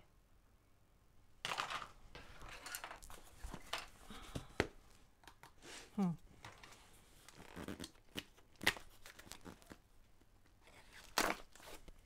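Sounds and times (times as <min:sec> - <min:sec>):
plastic tubing and box handled: 0:01.5 - 0:05.6.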